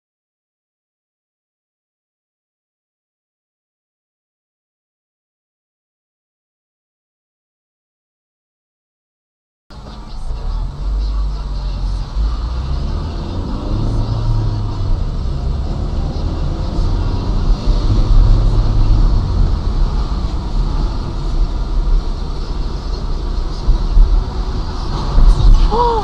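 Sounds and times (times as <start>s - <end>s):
car interior rumble: 9.7s - 26.0s.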